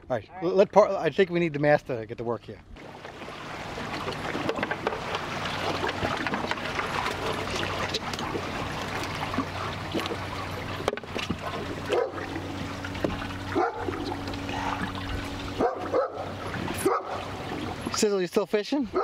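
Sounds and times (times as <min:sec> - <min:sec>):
steady low hum: 0:02.6 - 0:18.1
water trickling: 0:02.8 - 0:18.4
dog barking: 0:11.9 - 0:12.2, 0:13.6 - 0:13.9, 0:15.6 - 0:17.3.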